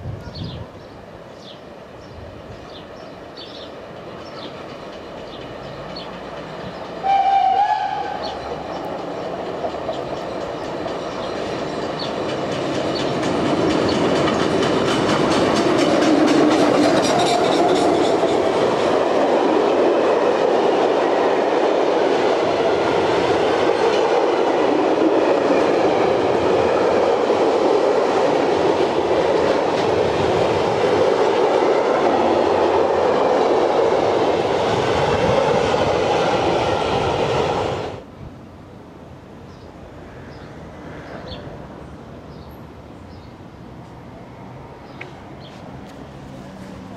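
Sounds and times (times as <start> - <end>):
train wheels clattering over rail joints: 3.4 - 7.1, 8.0 - 20.9, 22.1 - 36.2
steam locomotive whistle: 7.0 - 8.4.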